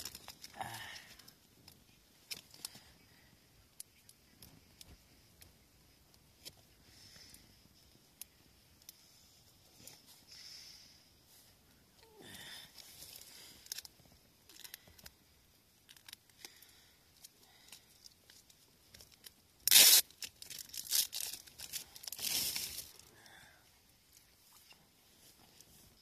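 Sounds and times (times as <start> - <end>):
plastic wrapper ripping: 0.0 - 0.7, 19.0 - 23.0
plastic wrapper crinkling: 0.0 - 0.8, 13.0 - 13.9, 17.8 - 23.0.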